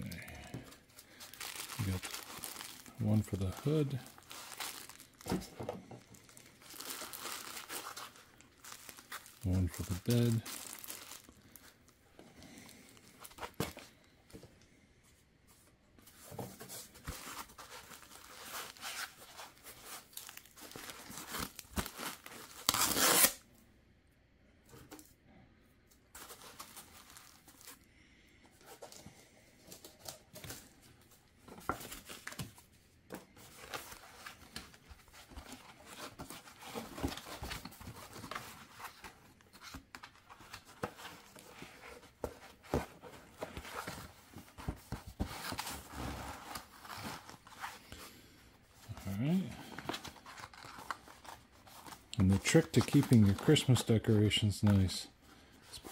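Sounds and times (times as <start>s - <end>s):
plastic bag crinkling: 1.0s - 11.7s, 17.4s - 23.3s, 26.2s - 27.8s.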